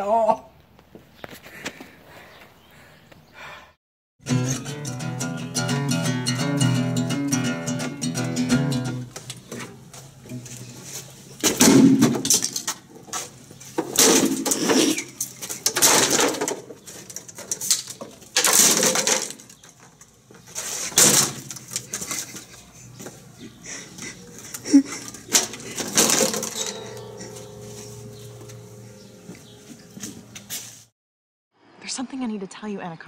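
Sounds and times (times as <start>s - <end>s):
guitar smashing crashes: 4.2s - 9.1s, 11.4s - 12.8s, 13.8s - 16.8s, 18.2s - 19.6s, 20.9s - 22.3s, 25.2s - 30.3s
acoustic guitar strummed: 4.2s - 9.2s, 25.3s - 30.6s.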